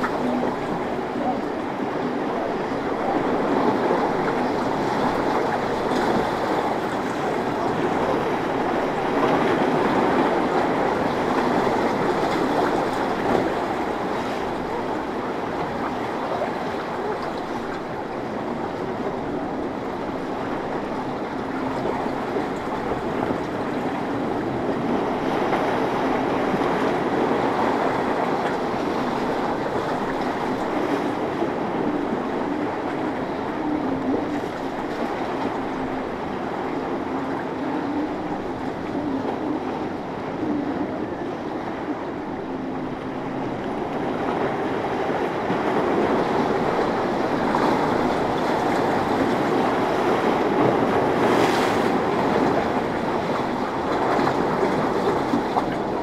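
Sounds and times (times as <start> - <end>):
outboard boat engine: 0.0 - 56.0
waves and spray: 0.0 - 56.0
wind: 0.0 - 56.0.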